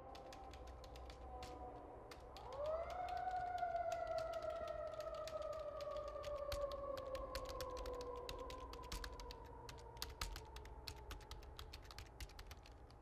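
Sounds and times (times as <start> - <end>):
keyboard typing: 0.1 - 12.9.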